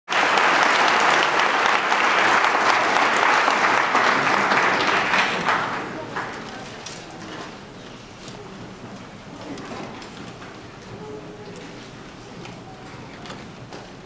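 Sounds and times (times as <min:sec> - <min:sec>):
audience applauding: 0:00.1 - 0:06.7.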